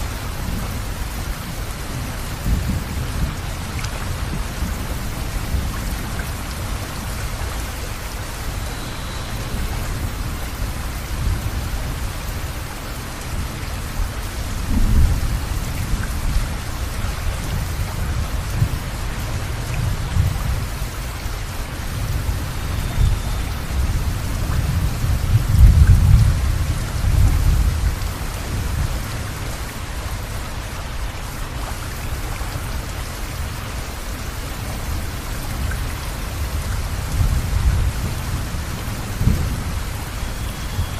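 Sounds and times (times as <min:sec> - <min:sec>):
steady rain falling: 0:00.0 - 0:40.9
rolling thunder: 0:22.0 - 0:28.9, 0:36.6 - 0:40.9.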